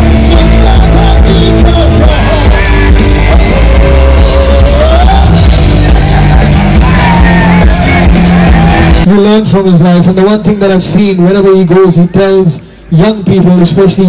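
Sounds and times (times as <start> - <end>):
person singing: 0.0 - 8.3
electric guitar: 0.0 - 9.1
drums: 0.0 - 11.0.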